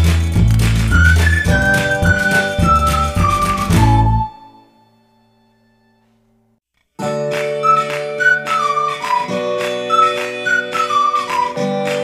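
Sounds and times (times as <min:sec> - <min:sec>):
background music with plucked beat: 0:00.0 - 0:04.4, 0:07.0 - 0:12.0.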